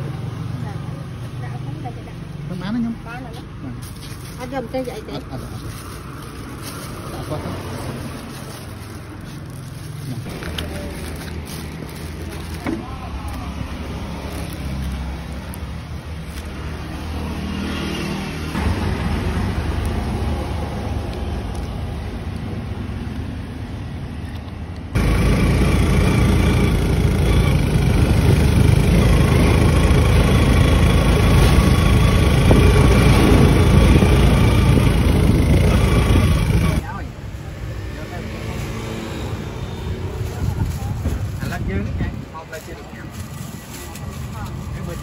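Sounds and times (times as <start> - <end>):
cart engine and road noise: 0.0 - 45.0.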